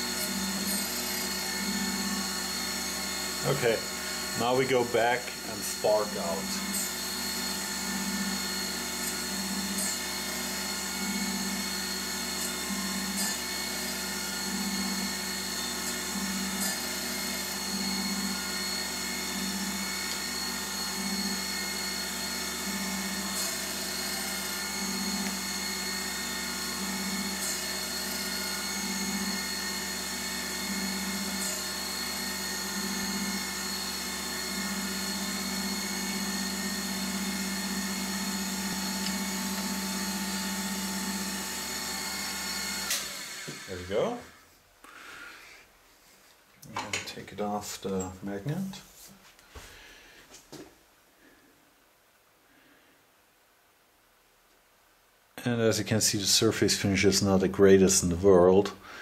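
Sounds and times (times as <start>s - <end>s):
surface grinder hum and whine: 0.0s - 44.1s.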